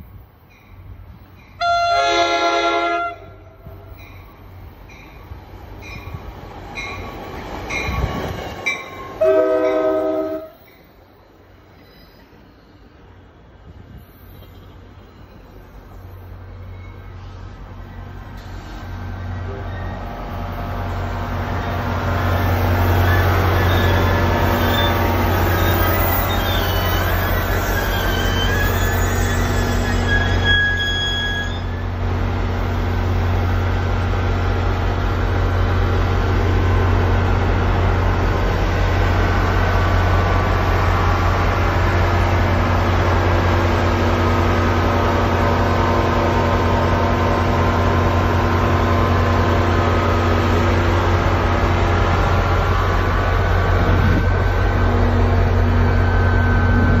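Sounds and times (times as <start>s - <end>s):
locomotive power unit drone: 39.6s - 57.0s.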